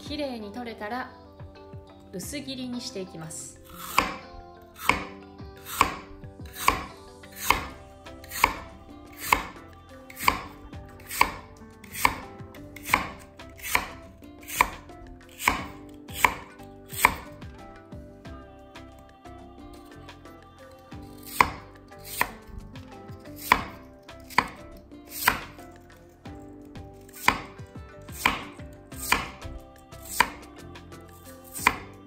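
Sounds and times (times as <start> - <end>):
knife slicing on wooden board: 3.7 - 17.4, 21.0 - 22.5, 23.1 - 26.0, 27.0 - 30.5, 31.4 - 32.0.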